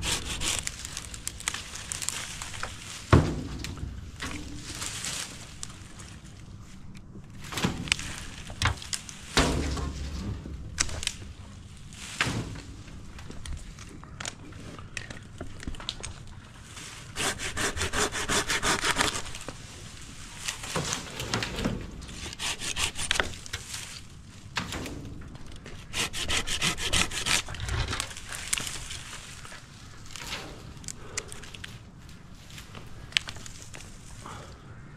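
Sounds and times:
hand saw cutting wood: 0.0 - 0.8, 17.1 - 19.4, 22.2 - 23.4, 25.7 - 28.1.

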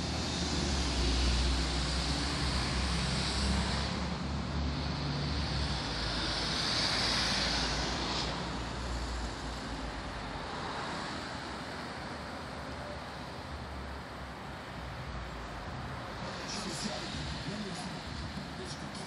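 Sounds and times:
car engines rumbling: 0.0 - 19.0
tyres hissing on the road: 0.0 - 19.0.

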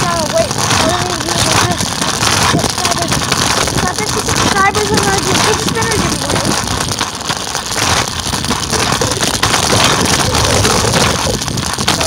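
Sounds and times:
scooter wheels rolling on concrete: 0.0 - 12.0
wind buffeting microphone: 0.0 - 12.0.

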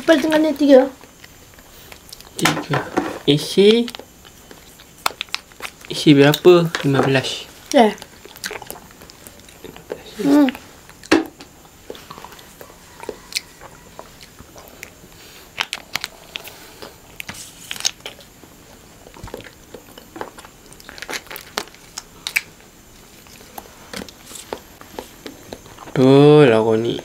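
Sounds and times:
chewing and sucking mouth sounds: 1.0 - 2.4, 3.6 - 26.1
plastic wrappers crinkling: 19.3 - 22.4.

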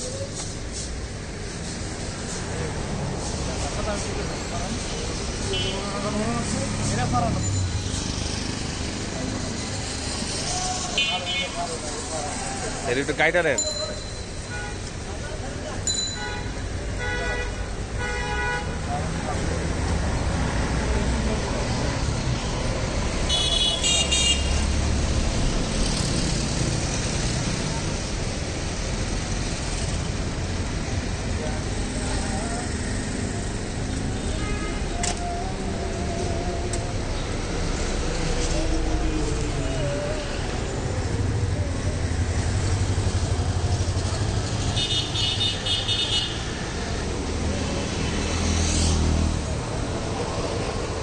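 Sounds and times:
street traffic rumble: 0.0 - 51.0
vehicle engine humming: 18.8 - 51.0.

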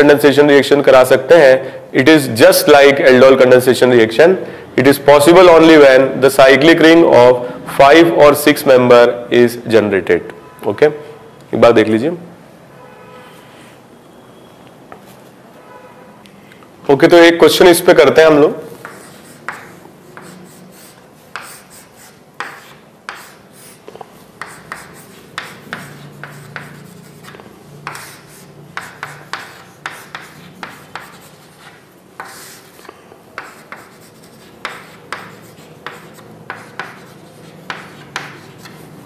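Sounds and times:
writing scratching on a board: 18.7 - 39.0.

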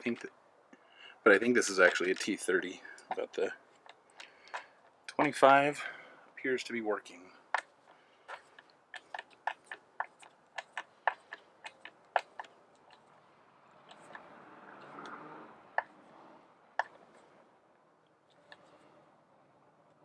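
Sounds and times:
screwdriver clicks and creaks: 3.0 - 5.3, 7.5 - 13.2.

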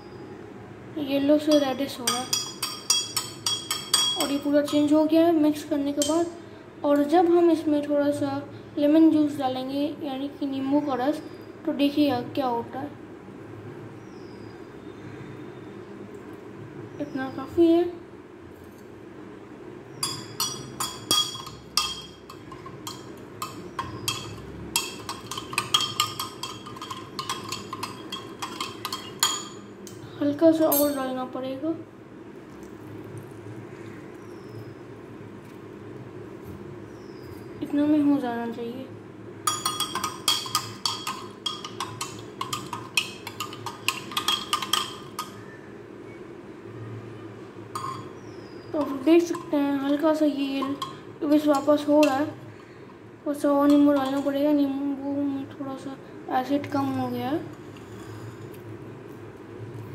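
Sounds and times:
spoon clinking in glass: 1.5 - 4.9, 20.0 - 30.0, 39.5 - 45.4, 47.8 - 48.2.

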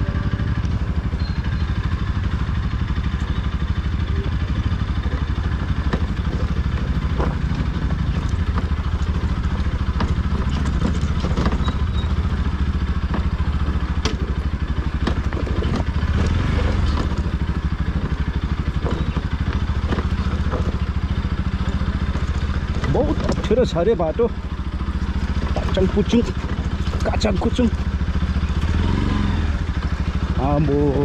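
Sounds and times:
motorcycle engine running: 0.0 - 31.0
knocks and rattles: 4.6 - 28.7.

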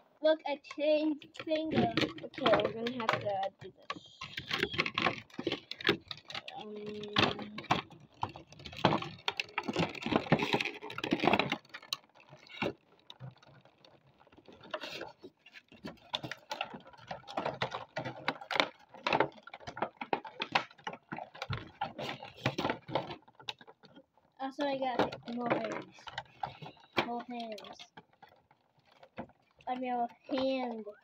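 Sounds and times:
plastic clicking and rattling: 0.0 - 31.0.

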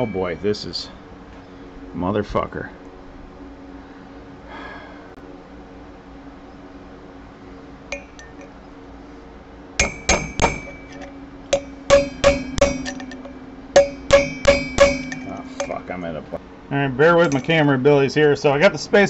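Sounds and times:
hammer striking steel punch: 9.8 - 16.0.

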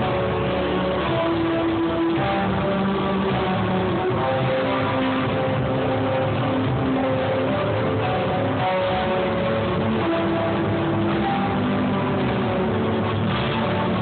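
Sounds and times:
live band music with guitar: 0.0 - 14.0.

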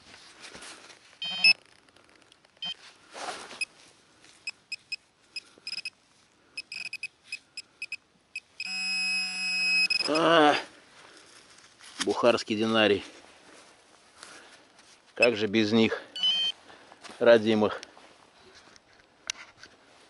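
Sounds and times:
metal detector beeping: 1.2 - 1.6, 2.6 - 2.8, 4.4 - 6.0, 6.6 - 10.4, 16.2 - 16.6
metal detector continuous buzzy tone: 1.2 - 1.6, 5.6 - 5.9, 6.6 - 10.3.

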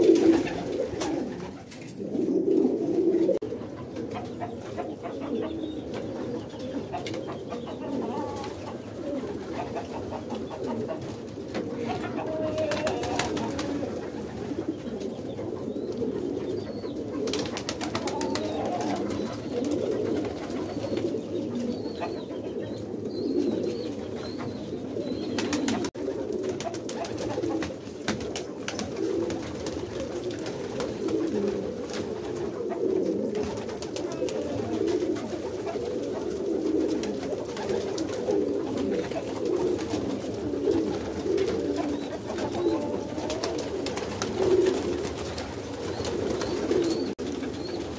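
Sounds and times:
pigeons cooing: 0.0 - 47.9.

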